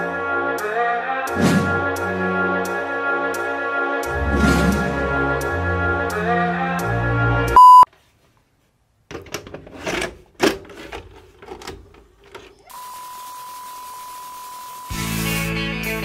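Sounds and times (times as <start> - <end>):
short loud beep: 7.6 - 7.9
steady beep tone: 7.6 - 7.9.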